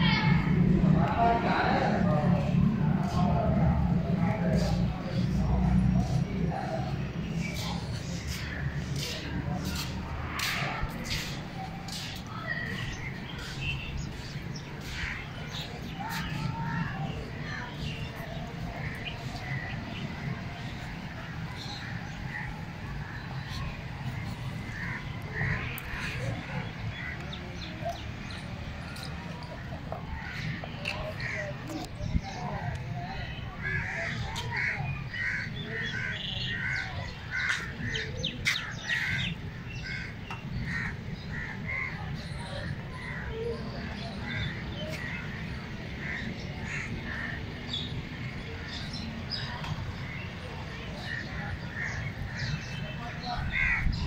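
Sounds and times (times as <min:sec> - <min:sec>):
birds chirping: 0:00.0 - 0:54.0
crows cawing: 0:33.6 - 0:41.9, 0:53.5 - 0:53.9.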